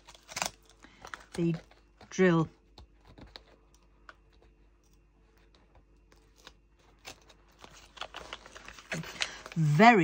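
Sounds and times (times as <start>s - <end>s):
plastic film crackling: 6.2s - 10.0s.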